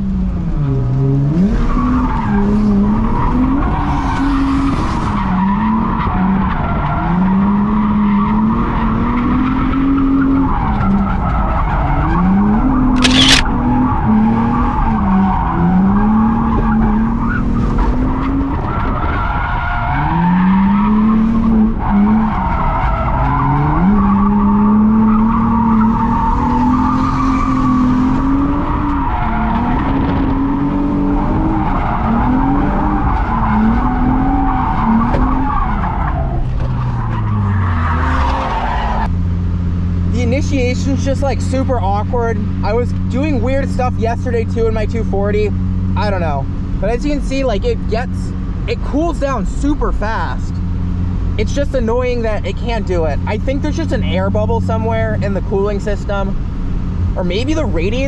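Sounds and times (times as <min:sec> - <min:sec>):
car engine revving: 0:00.0 - 0:58.0
sharp click: 0:12.9 - 0:13.5.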